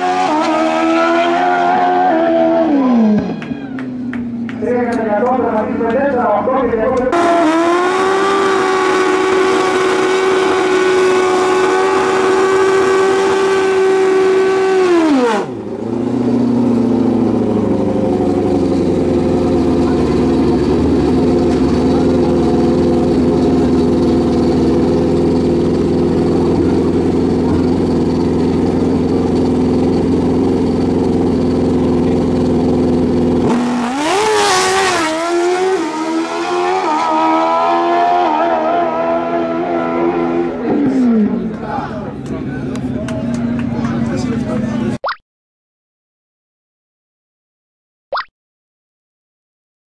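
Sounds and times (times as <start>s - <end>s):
motorcycle engine revving: 0.0s - 3.4s, 7.1s - 41.5s.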